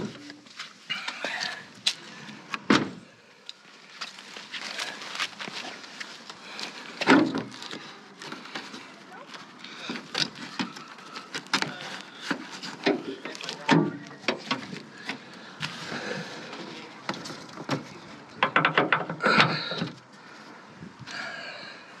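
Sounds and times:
car bonnet clicks and knocks: 0:17.6 - 0:20.0.

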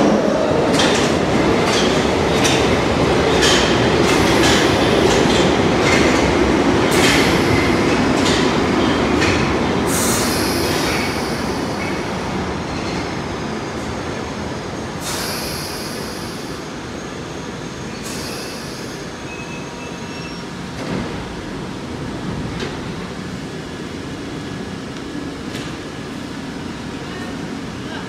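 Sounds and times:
train wheels and motors rumbling: 0:00.0 - 0:28.0
air hiss: 0:09.9 - 0:12.0, 0:15.0 - 0:16.7, 0:18.0 - 0:19.1
faint brake squeal: 0:17.9 - 0:20.5.

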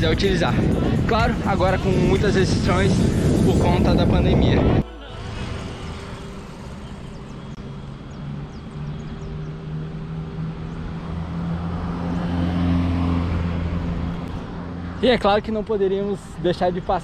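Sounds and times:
road noise rushing: 0:00.0 - 0:17.0
vehicle engine droning: 0:03.0 - 0:15.2.

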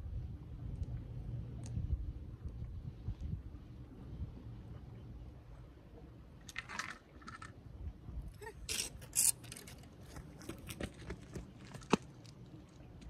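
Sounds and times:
fishing rod scraping and clattering: 0:06.5 - 0:07.6, 0:08.6 - 0:12.1.

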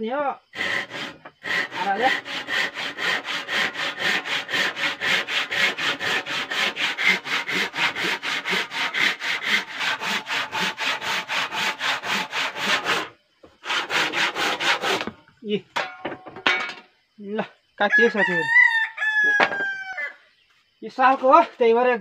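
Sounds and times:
handsaw cutting log: 0:00.5 - 0:15.1.

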